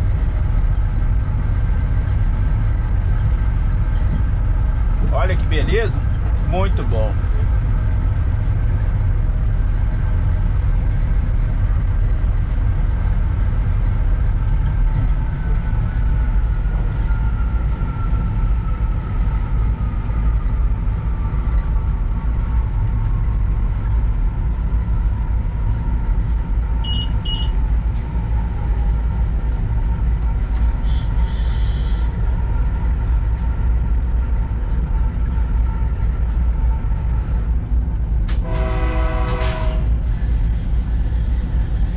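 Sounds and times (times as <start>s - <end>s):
locomotive rumble: 0.0s - 41.9s
locomotive horn: 26.8s - 27.6s, 38.4s - 40.0s
short electronic beeps: 26.8s - 27.6s.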